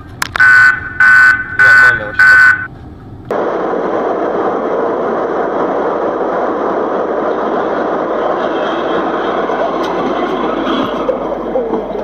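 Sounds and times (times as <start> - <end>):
car engine: 0.0 - 12.0
wind noise: 3.3 - 12.0.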